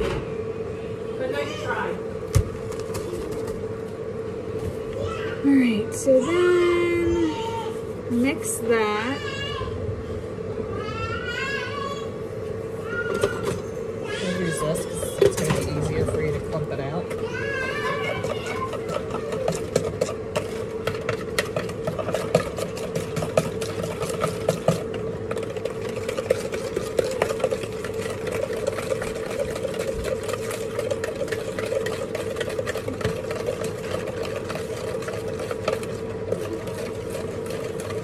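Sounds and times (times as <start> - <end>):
steady hum: 0.0 - 38.0
utensil scraping plastic bowl: 14.3 - 38.0.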